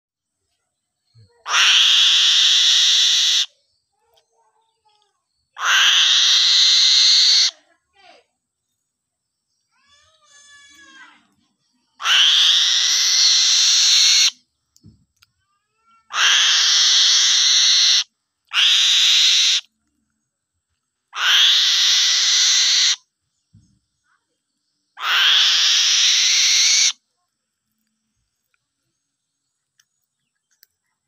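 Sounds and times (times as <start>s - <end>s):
eaglet hoarse screeches: 1.5s - 3.5s, 5.6s - 7.5s, 12.0s - 14.4s, 16.1s - 19.7s, 21.2s - 23.0s, 25.0s - 27.0s.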